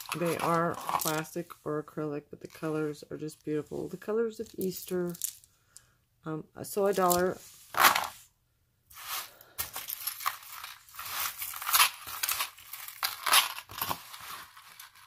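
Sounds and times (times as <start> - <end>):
packaging rustling and crinkling: 0.0 - 1.2, 9.0 - 15.0.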